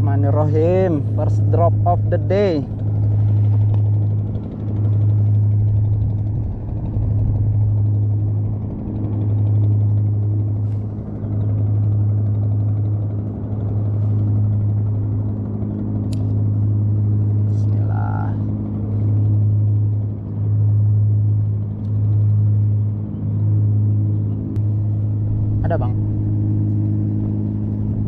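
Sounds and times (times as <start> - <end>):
motor low hum: 0.0 - 28.0
sharp click: 16.1 - 16.4.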